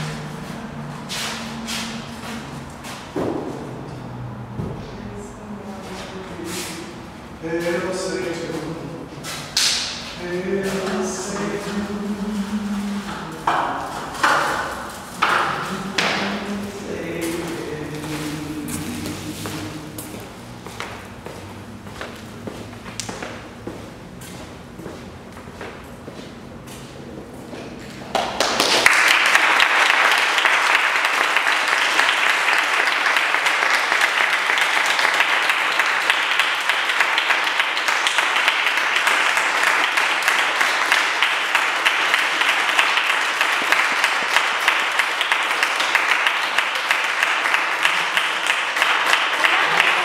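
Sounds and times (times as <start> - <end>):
audience applauding: 28.1 - 50.0.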